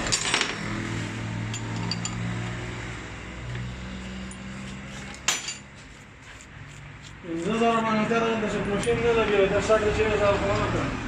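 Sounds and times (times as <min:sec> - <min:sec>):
metal tools clinking: 0:01.5 - 0:02.3, 0:05.2 - 0:05.7.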